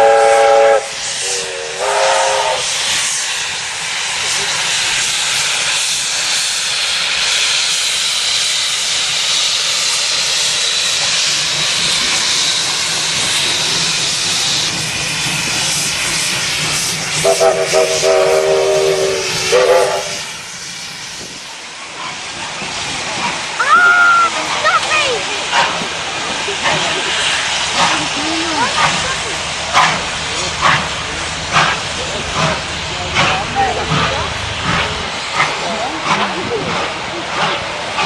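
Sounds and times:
steam whistle: 0:00.0 - 0:02.8, 0:17.2 - 0:20.4
loud steam hiss: 0:00.0 - 0:38.0
steam locomotives pulling away: 0:00.0 - 0:38.0.

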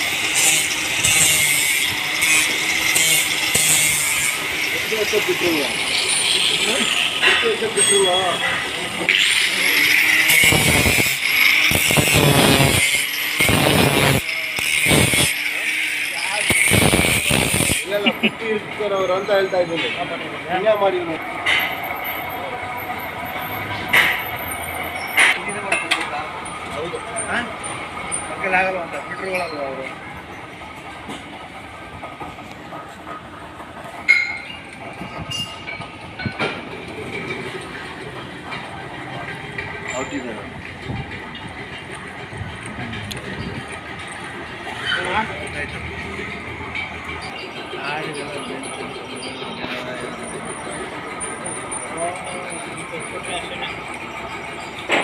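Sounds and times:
angle grinder motor whine: 0:00.0 - 0:18.1
grinding disc on steel: 0:00.0 - 0:55.0
steady machine noise: 0:00.0 - 0:55.0
metal crankshaft clanging: 0:17.7 - 0:55.0.

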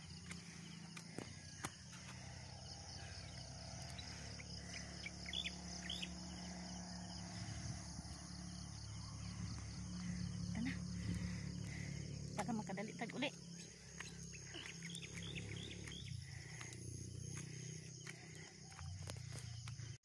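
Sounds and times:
low steady rumble: 0:00.0 - 0:18.3
insects: 0:00.0 - 0:20.0.

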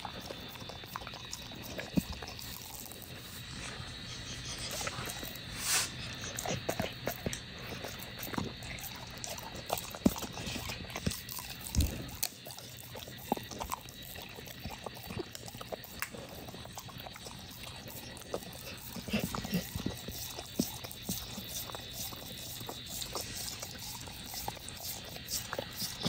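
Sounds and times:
dog licking and smacking: 0:00.0 - 0:26.0.

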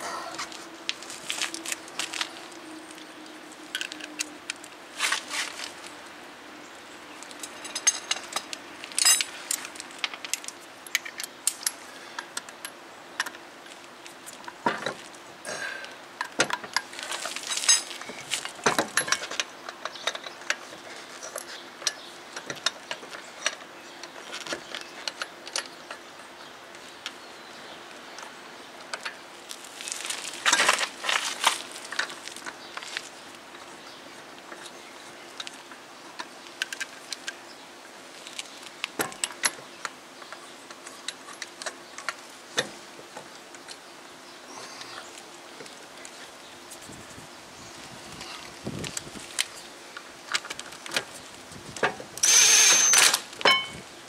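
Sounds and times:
metal lug nuts clinking: 0:52.2 - 0:53.8.

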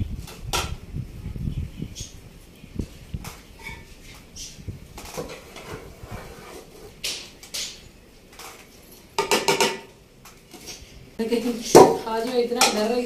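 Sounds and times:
rice scraping and rustling: 0:05.0 - 0:07.0.

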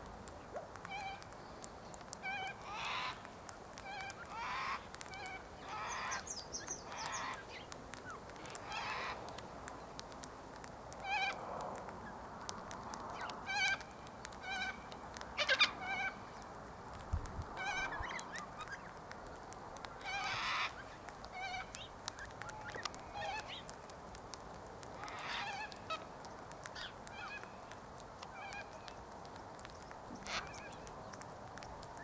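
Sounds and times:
parrots nasal calls: 0:02.2 - 0:03.2, 0:20.0 - 0:21.6, 0:25.0 - 0:25.7.

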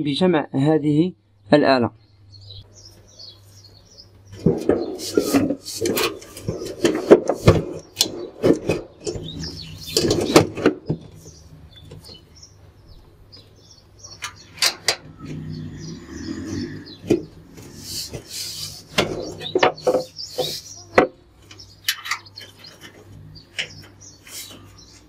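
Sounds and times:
faint bird chirps: 0:09.1 - 0:25.0.

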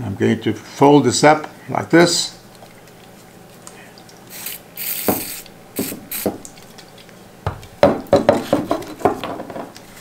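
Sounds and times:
aerosol can spraying: 0:04.3 - 0:06.4.

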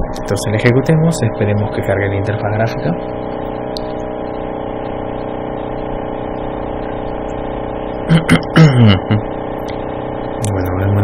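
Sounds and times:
steady humming buzz: 0:00.0 - 0:11.0
voice murmuring: 0:08.1 - 0:09.3.

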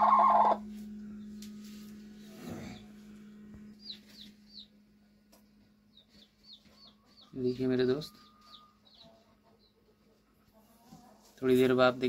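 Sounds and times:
hen clucking: 0:00.0 - 0:00.7, 0:05.9 - 0:11.4.

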